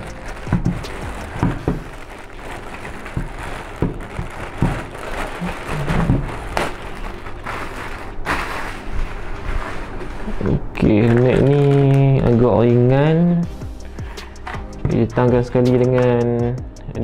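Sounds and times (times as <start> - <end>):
plastic bag crinkling: 0.0 - 13.3.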